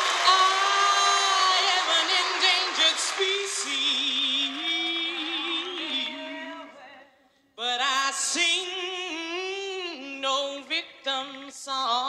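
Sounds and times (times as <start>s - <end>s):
audience cheering: 0.0s - 6.8s
woman singing with vibrato: 0.1s - 7.2s.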